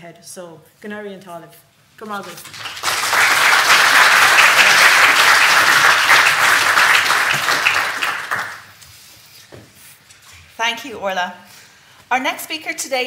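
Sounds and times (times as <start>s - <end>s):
audience applauding: 2.2s - 8.8s.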